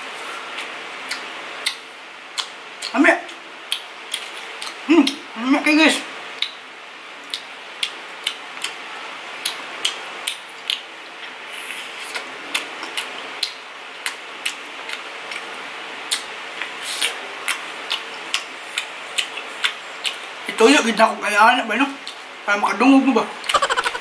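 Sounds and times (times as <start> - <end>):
mouth clicks: 23.5 - 24.0.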